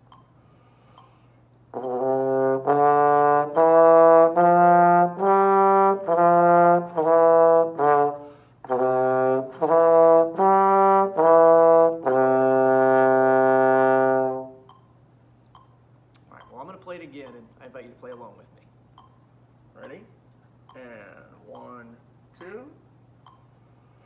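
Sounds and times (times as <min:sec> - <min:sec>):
breath: 0:00.4 - 0:01.5, 0:08.2 - 0:08.6
trombone playing scale: 0:01.7 - 0:14.8.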